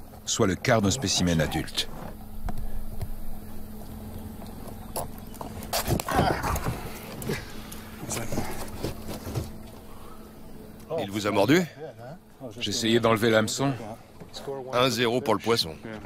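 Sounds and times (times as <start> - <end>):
steady low hum: 0.0 - 16.0
fish thrashing on boat deck: 3.7 - 10.2.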